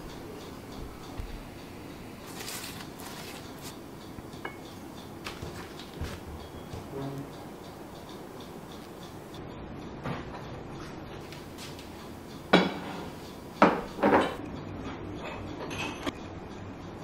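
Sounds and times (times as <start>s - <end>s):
ceramic plates clinking on table: 12.5s - 14.4s.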